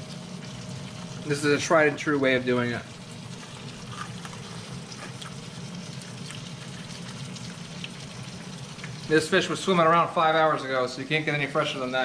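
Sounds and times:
fish sizzling in a pan: 0.0s - 10.6s
low steady hum: 0.0s - 12.0s
faint crackles: 2.9s - 9.2s.

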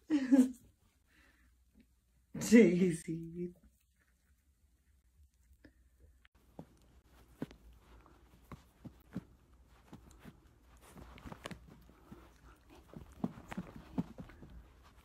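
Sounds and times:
puppy chewing rope toy: 6.4s - 15.0s.

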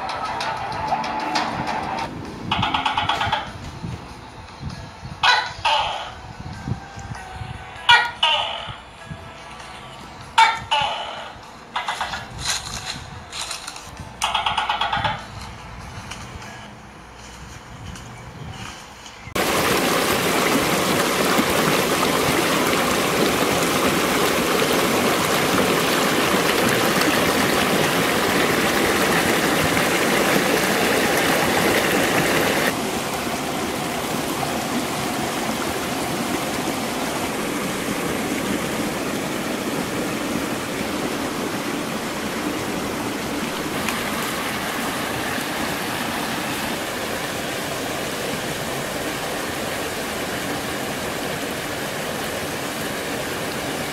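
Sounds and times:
stream rushing: 0.0s - 3.5s, 19.4s - 53.9s.

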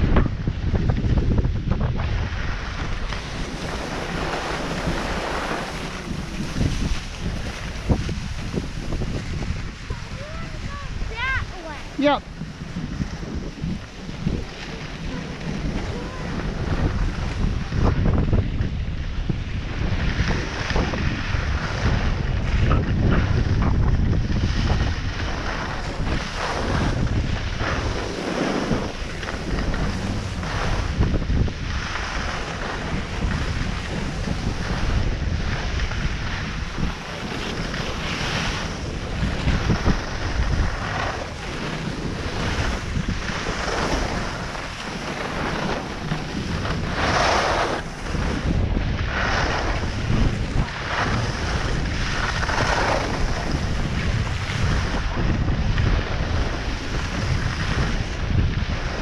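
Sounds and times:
wind rumbling on microphone: 0.0s - 59.0s
skis scraping on packed snow: 0.4s - 59.0s.

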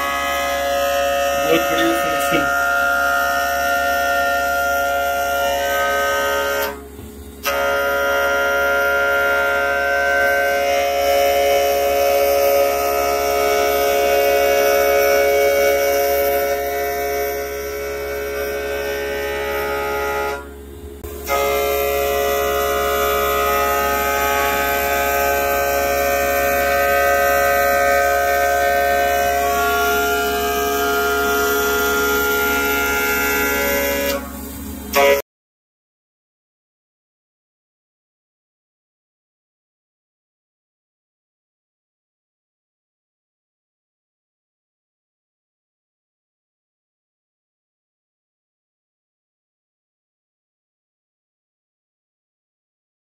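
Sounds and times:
low machine hum: 0.0s - 35.2s
milling machine whine: 0.0s - 35.2s.

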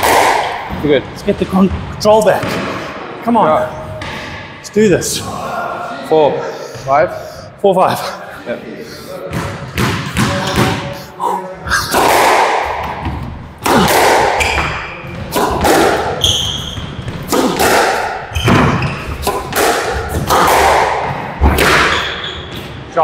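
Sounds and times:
squash ball hits echoing: 0.0s - 3.0s, 9.2s - 11.0s, 11.7s - 22.8s
shoe squeak: 14.4s - 15.0s, 16.1s - 17.2s, 18.3s - 19.3s, 21.9s - 22.8s.

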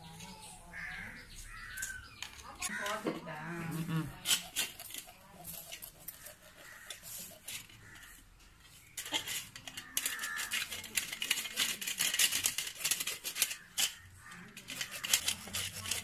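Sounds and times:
knife scraping fish scales: 4.0s - 8.2s, 9.0s - 16.0s.

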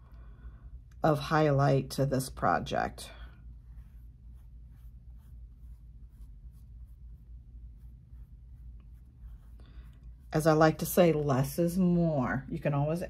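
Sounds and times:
paintbrush swishing on wood: 3.4s - 11.3s.

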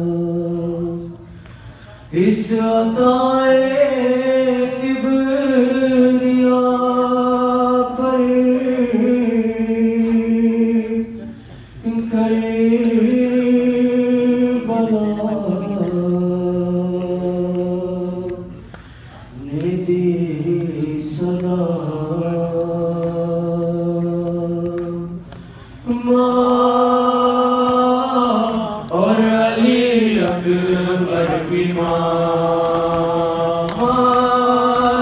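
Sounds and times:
man singing into a microphone: 2.1s - 11.2s, 19.4s - 35.0s.

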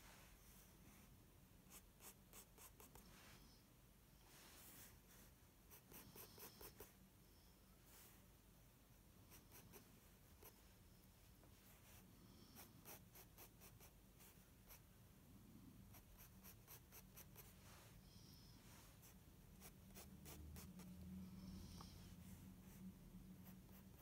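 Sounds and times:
pencil scratching on paper: 5.7s - 6.9s, 9.3s - 10.6s, 12.6s - 14.8s, 15.9s - 17.6s, 19.0s - 21.0s, 23.4s - 24.0s.

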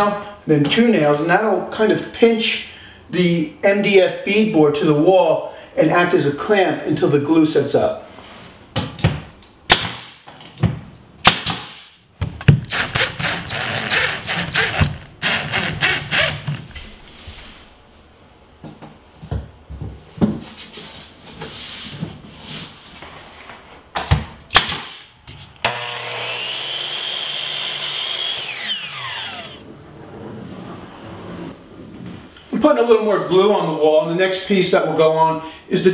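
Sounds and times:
pneumatic nail gun shots: 9.7s - 10.3s, 11.2s - 16.8s, 24.5s - 25.1s
power saw running: 12.6s - 16.9s, 25.6s - 29.6s.

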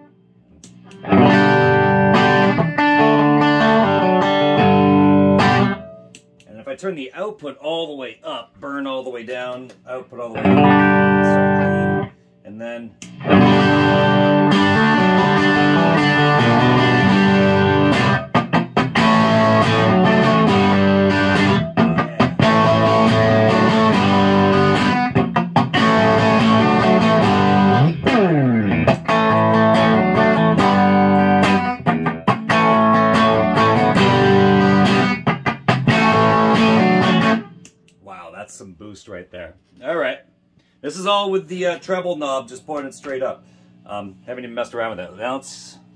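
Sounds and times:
overdriven electric guitar: 0.0s - 6.2s, 10.4s - 12.1s, 13.1s - 37.7s.

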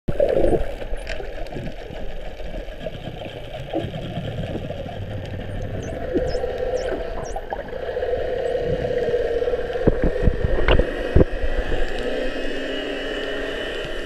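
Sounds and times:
underwater boat engine drone: 0.1s - 14.0s.

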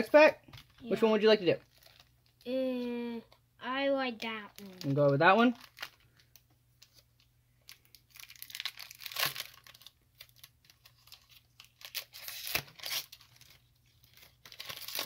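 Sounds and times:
foil wrapper crinkling and tearing: 1.6s - 3.0s, 4.3s - 7.0s, 7.6s - 15.0s.

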